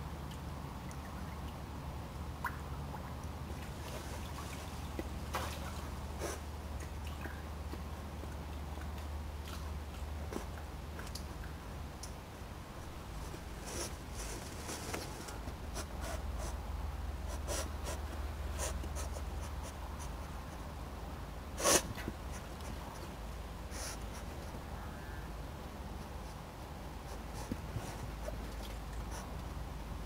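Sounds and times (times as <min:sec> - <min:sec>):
animal rustling through grass: 0:13.0 - 0:16.6.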